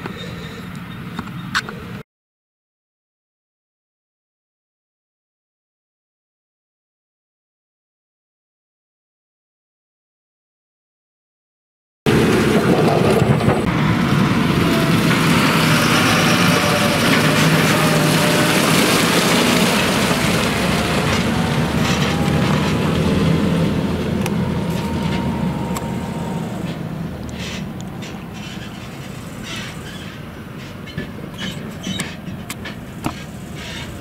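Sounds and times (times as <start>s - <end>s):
tractor engine: 12.1s - 34.0s
tyre and trailer rumble on gravel: 12.1s - 34.0s.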